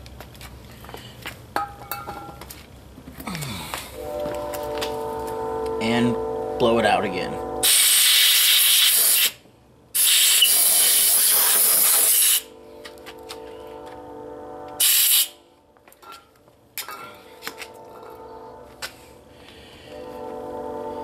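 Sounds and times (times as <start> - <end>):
compressed air blow gun bursts: 7.6 - 9.4, 10.0 - 12.5, 14.8 - 15.3.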